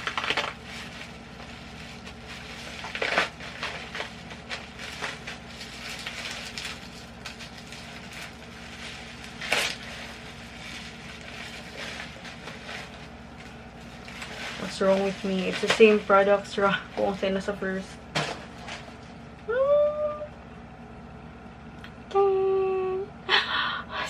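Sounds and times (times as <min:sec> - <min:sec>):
packaging crinkling and crackling: 0:00.0 - 0:19.2.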